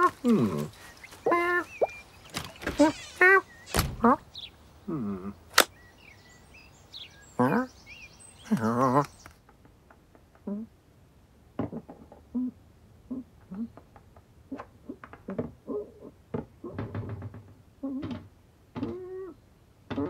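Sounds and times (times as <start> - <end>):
short grunts: 0.0 - 1.5
birdsong: 0.0 - 10.6
sharp click: 5.5 - 5.7
person imitating cat call: 18.8 - 19.4.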